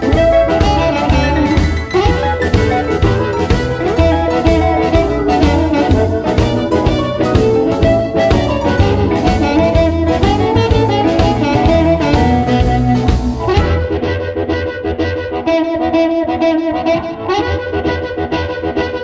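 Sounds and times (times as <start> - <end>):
steady drum beat: 0.0 - 14.1
bass: 0.0 - 19.0
blues harmonica lead: 0.0 - 19.0
electric guitar: 0.0 - 19.0.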